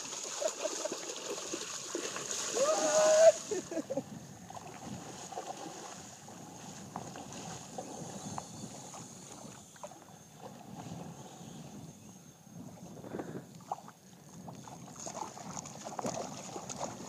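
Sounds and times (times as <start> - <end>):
faint splashes: 0.0 - 11.1, 13.6 - 17.0
water moving around boat hull: 0.0 - 11.8, 13.6 - 17.0
wind buffeting microphone: 2.9 - 9.6.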